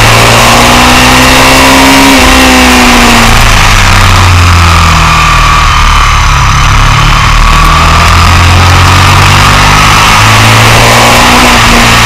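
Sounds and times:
motorcycle engine at speed: 0:00.0 - 0:12.0
road noise: 0:00.0 - 0:12.0.

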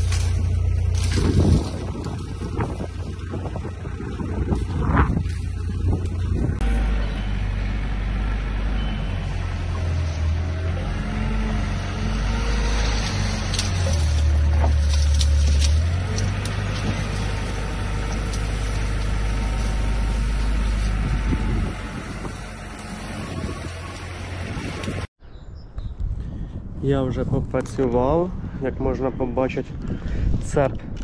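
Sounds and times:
branches cracking: 0:00.0 - 0:07.0, 0:09.2 - 0:25.1
wheel loader diesel engine: 0:00.0 - 0:25.1.

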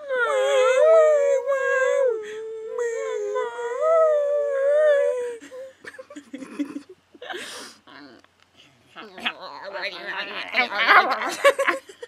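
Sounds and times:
people howling like wolves: 0:00.0 - 0:05.4.

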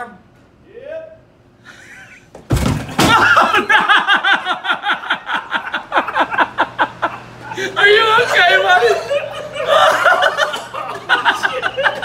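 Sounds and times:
men laughing: 0:01.6 - 0:02.3, 0:02.9 - 0:12.0
wooden door crashing open: 0:02.4 - 0:03.6.

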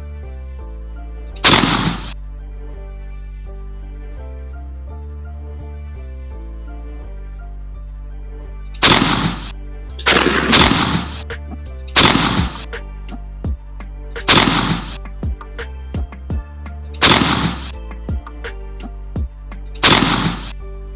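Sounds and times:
background music: 0:00.0 - 0:20.9
shotgun blasts: 0:01.4 - 0:02.2, 0:08.8 - 0:11.2, 0:12.0 - 0:12.8, 0:14.2 - 0:15.0, 0:17.0 - 0:17.8, 0:19.8 - 0:20.6.

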